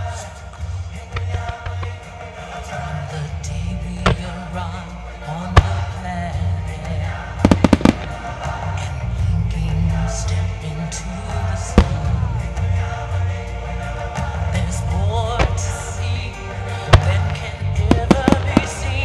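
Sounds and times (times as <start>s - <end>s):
music with bass beat and singing: 0.0s - 19.0s
firework bangs: 5.5s - 6.0s, 7.4s - 8.6s, 16.9s - 19.0s.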